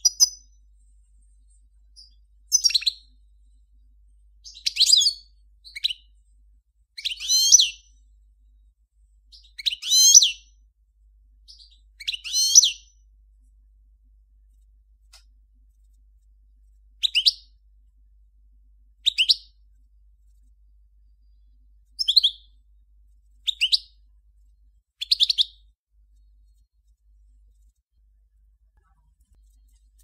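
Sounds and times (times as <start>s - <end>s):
goldfinch chirping song: 0.0s - 0.6s, 1.8s - 3.2s, 4.4s - 6.2s, 7.0s - 8.0s, 9.3s - 10.6s, 11.4s - 13.0s, 17.0s - 17.6s, 19.0s - 19.6s, 22.0s - 22.6s, 23.3s - 24.1s, 25.0s - 25.7s.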